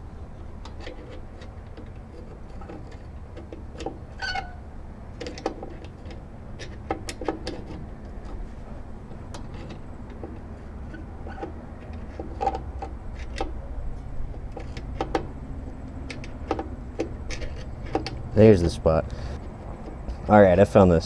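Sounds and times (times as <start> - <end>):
screwdriver clicking and scraping metal: 0.6 - 4.6, 5.2 - 8.4, 9.1 - 18.6
brief squeak: 4.2 - 4.6.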